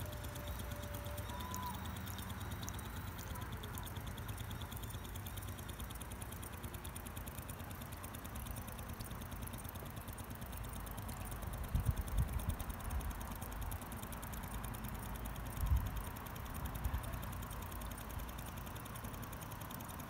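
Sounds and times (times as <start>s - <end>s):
toy steam engine ticking: 0.0s - 20.0s.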